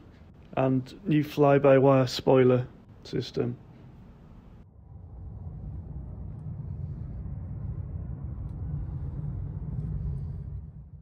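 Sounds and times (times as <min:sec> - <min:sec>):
outdoor background rumble: 0:04.2 - 0:11.0.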